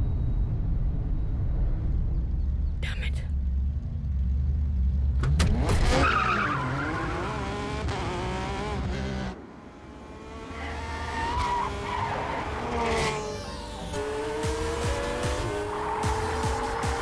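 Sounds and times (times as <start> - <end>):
car engine revving: 4.1 - 17.0.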